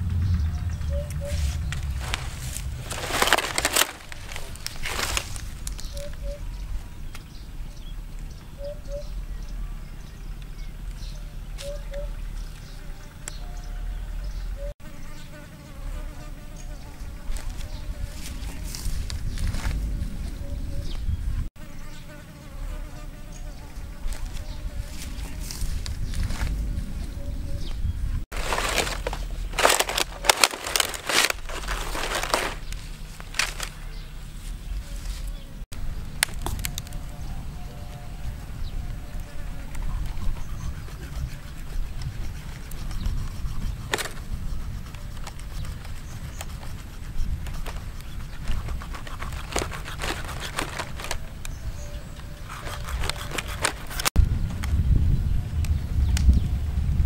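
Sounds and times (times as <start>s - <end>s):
dry palm fronds crackling: 0.0s - 7.3s, 17.2s - 20.3s, 24.0s - 27.0s, 28.3s - 40.2s, 45.1s - 54.8s
steady low rumble: 0.0s - 14.8s, 15.7s - 21.5s, 22.5s - 48.8s, 54.1s - 57.0s
knife cutting through flesh: 40.8s - 51.3s, 52.4s - 54.2s.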